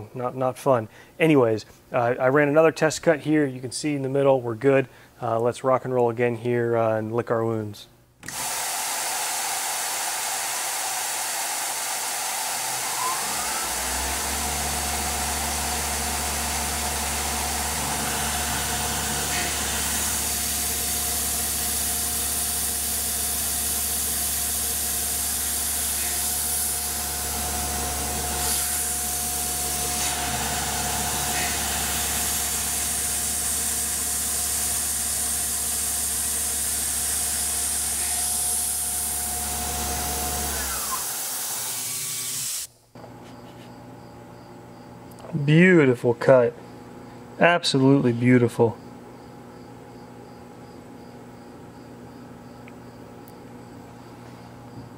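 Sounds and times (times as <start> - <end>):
mill cutting aluminum: 8.2 - 42.7
coolant spray hiss: 17.8 - 27.2.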